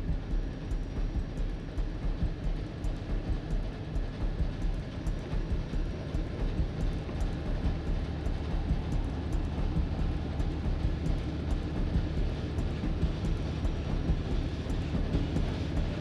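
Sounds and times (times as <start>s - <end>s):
train rumbling: 0.0s - 16.0s.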